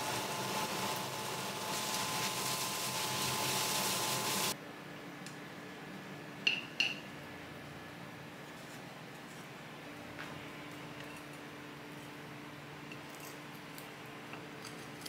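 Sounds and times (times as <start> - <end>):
food sizzling in a hot pan: 0.0 - 4.6.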